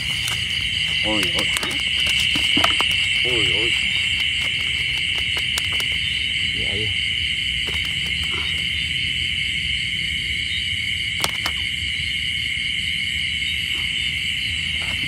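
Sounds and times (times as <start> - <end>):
insects trilling: 0.0 - 15.0
handling clicks: 11.2 - 11.6.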